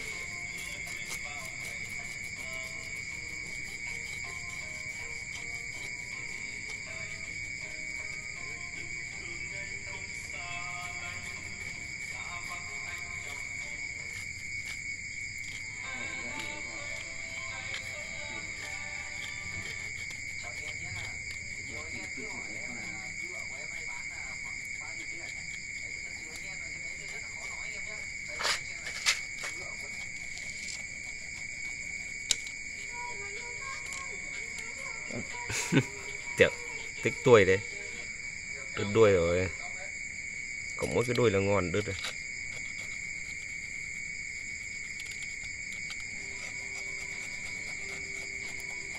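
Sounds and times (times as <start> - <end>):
faint music: 0.0 - 14.8, 15.4 - 39.9, 45.8 - 48.9
crickets chirping: 0.0 - 48.9
night insects chorus: 0.0 - 48.9.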